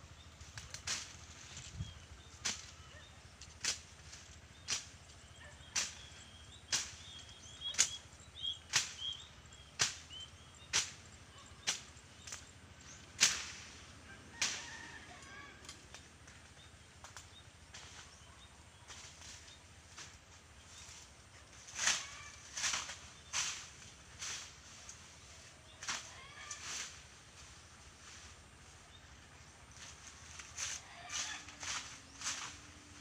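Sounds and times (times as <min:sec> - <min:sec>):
blade swishing through grass: 0:13.2 - 0:13.8, 0:20.8 - 0:28.4, 0:29.7 - 0:33.0.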